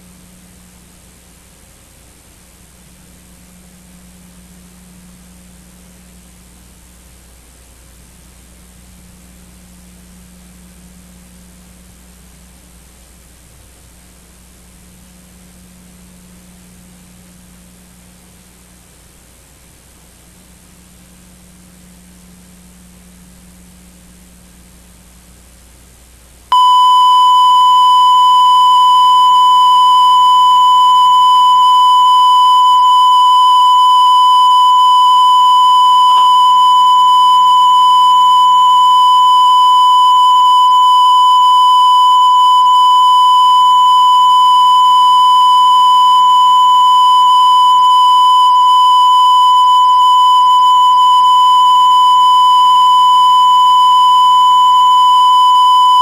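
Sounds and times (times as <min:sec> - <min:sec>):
high-pitched test tone: 0:26.5 - 0:56.0.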